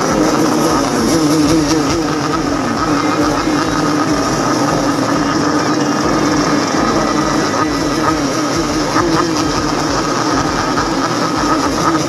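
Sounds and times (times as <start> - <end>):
motorcycles revving: 0.0 - 12.0.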